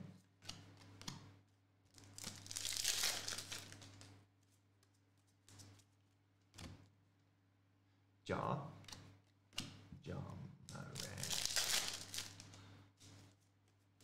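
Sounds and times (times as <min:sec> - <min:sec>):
wrapper crinkling and tearing: 0:01.9 - 0:04.1, 0:10.9 - 0:12.6.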